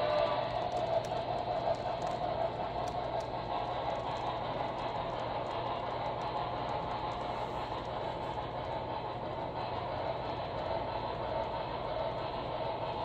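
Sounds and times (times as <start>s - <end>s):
clicks over rail joints: 0.0s - 3.3s
model train wheels rumbling on rail: 0.0s - 13.0s.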